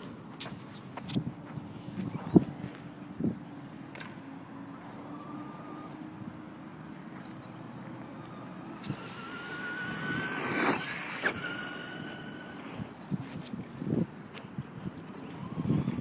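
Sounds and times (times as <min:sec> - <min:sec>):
electric motor whining: 0:04.8 - 0:06.6, 0:07.2 - 0:13.0.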